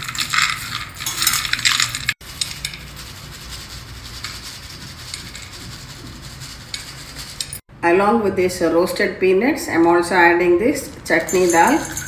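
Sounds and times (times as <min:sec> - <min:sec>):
peanuts clattering in steel pan: 0:00.0 - 0:02.7, 0:11.3 - 0:12.0.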